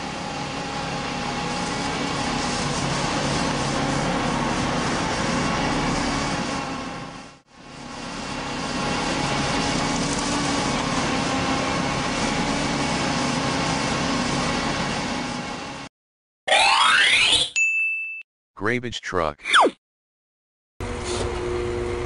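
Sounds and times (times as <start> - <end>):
heavy truck engine running: 0.0 - 15.9.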